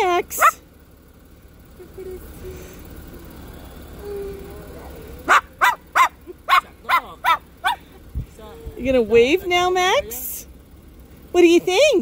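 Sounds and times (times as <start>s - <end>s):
cockatoo barking like dog: 0.3s - 0.6s, 5.1s - 7.9s.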